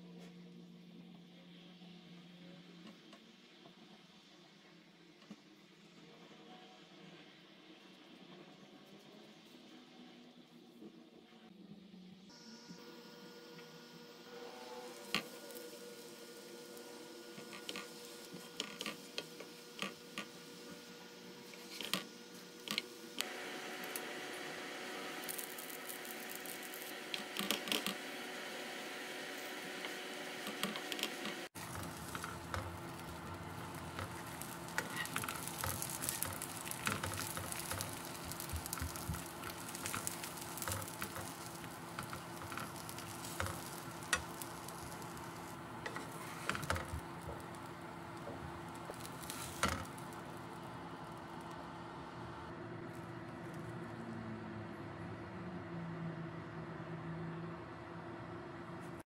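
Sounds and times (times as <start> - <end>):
food sizzling in oil: 14.3 - 51.6
utensils scraping a pan: 30.5 - 47.5.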